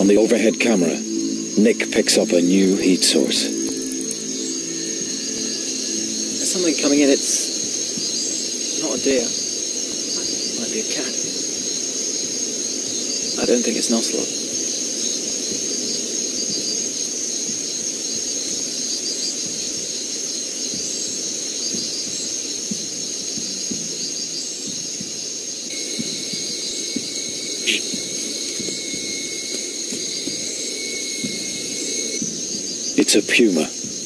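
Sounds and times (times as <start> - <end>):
steady high note: 0.0 - 9.4
high insect chorus: 0.0 - 34.0.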